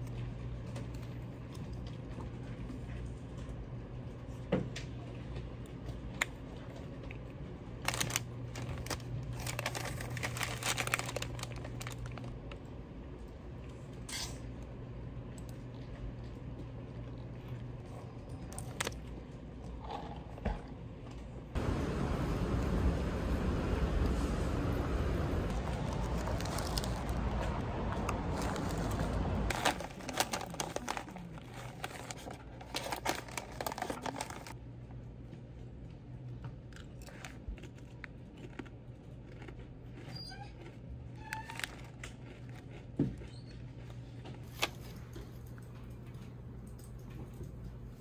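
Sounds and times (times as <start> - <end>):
traffic-like rumble: 0.0 - 39.0
packaging crinkling and rustling: 7.8 - 12.7, 25.5 - 34.6.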